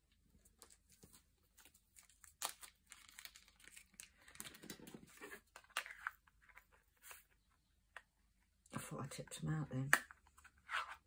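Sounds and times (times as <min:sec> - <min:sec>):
plastic bag crinkling: 0:01.6 - 0:05.1.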